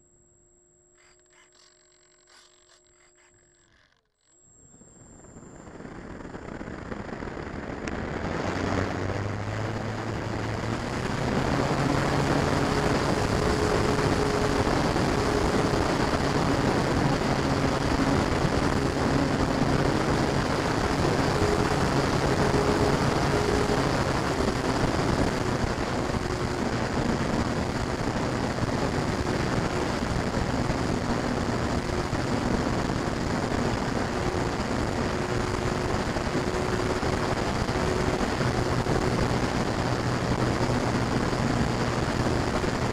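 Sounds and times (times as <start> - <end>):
model plane electric motor: 0.8 - 42.9
wind rush: 5.5 - 42.9.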